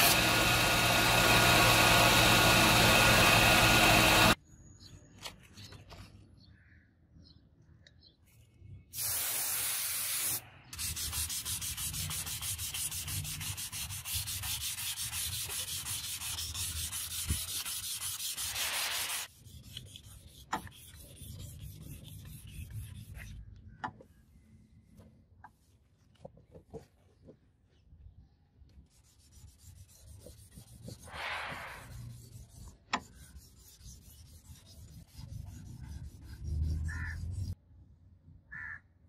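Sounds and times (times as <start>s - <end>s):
sandpaper rubbing on steel blade: 10.8s - 23.4s, 28.9s - 37.6s.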